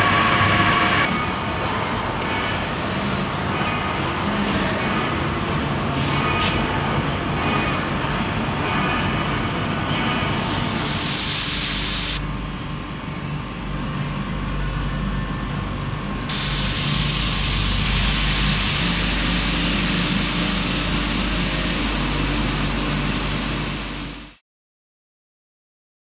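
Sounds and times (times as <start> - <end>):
spray gun hissing compressed air: 10.6 - 12.2, 16.3 - 24.4
low machine hum: 12.2 - 24.4.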